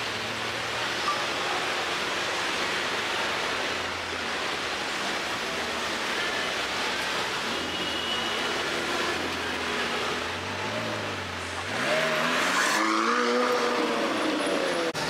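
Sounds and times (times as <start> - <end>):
car engine revving: 8.7 - 15.0.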